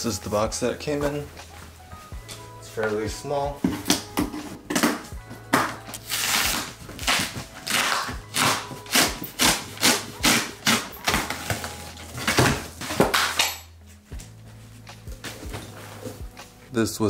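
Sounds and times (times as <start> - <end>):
packing tape ripping: 4.7 - 13.7
cardboard tearing and scraping: 6.0 - 13.4.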